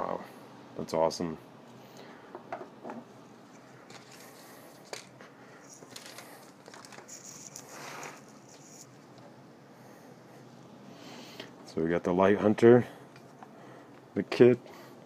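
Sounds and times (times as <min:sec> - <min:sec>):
rustling: 0:03.4 - 0:09.0.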